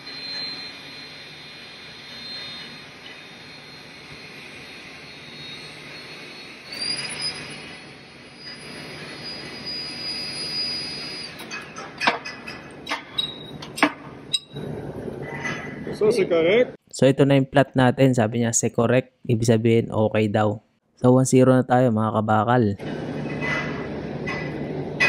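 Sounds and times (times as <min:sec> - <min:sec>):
high whine: 0:00.0 - 0:16.8
machine hum: 0:00.0 - 0:16.8, 0:22.8 - 0:25.0
metal clanks: 0:11.4 - 0:14.6, 0:23.1 - 0:25.0.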